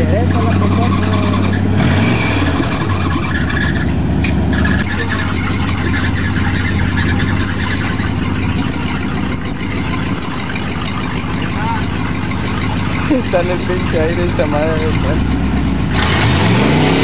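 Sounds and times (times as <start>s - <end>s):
truck engine under load: 0.0s - 17.0s
water splashing around wheels: 0.0s - 17.0s.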